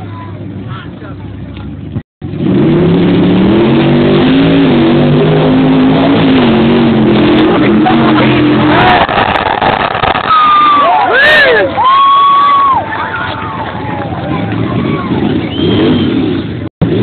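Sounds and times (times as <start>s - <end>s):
engine revving hard: 2.2s - 10.8s, 14.3s - 17.0s.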